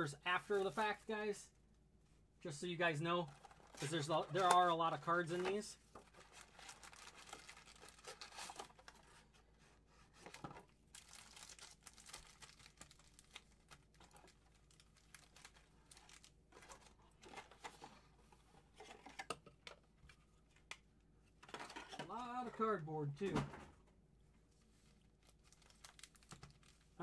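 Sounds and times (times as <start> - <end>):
plastic wrap crinkling and tearing: 3.3 - 9.1, 10.2 - 17.6, 25.0 - 27.0.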